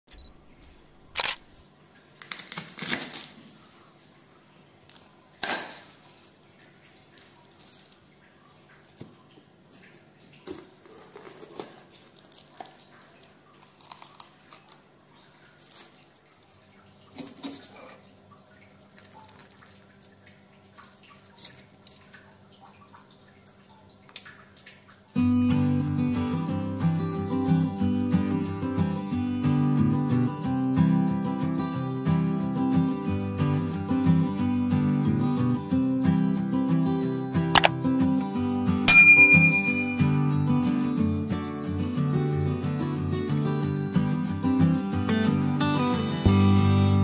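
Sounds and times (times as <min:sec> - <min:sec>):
dishes clinking: 0:05.4 - 0:06.0, 0:38.9 - 0:40.2.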